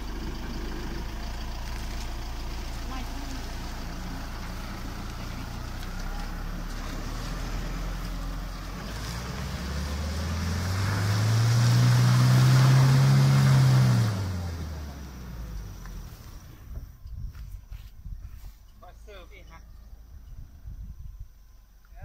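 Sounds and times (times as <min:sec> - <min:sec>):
diesel engine pulling uphill: 0:00.0 - 0:22.0.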